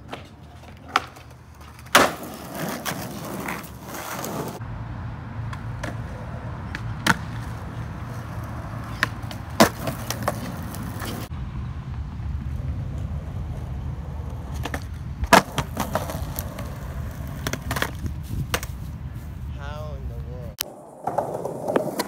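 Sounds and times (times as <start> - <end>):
skateboard clacks: 0.0 - 4.6, 5.5 - 11.3, 14.2 - 18.8, 20.6 - 22.0
skateboard wheels rolling: 0.0 - 4.6, 5.3 - 19.4, 20.6 - 22.0.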